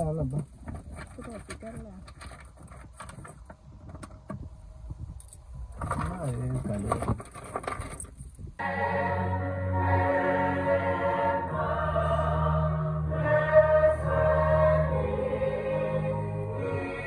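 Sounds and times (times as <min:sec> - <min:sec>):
choir singing held chords: 0:08.6 - 0:17.0.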